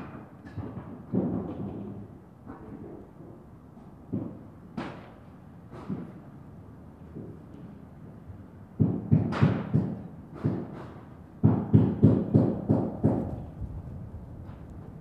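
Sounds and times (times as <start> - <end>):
hammer striking timber: 8.8 - 13.4.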